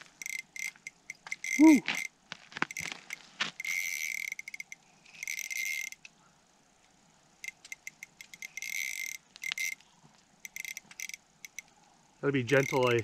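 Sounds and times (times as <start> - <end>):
fishing reel ratcheting clicks: 0.2 - 1.6, 3.6 - 6.0, 7.4 - 9.8, 10.4 - 11.6, 12.6 - 13.0.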